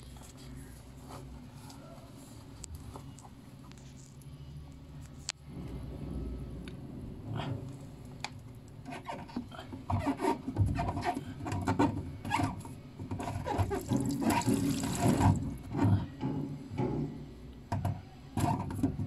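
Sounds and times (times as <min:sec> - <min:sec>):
water draining and gurgling: 0:13.6 - 0:15.5.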